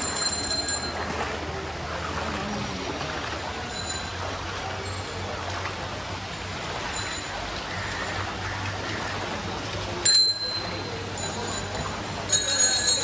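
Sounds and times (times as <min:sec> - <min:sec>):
bell ringing: 0:00.0 - 0:01.1, 0:03.7 - 0:05.2, 0:10.1 - 0:13.0.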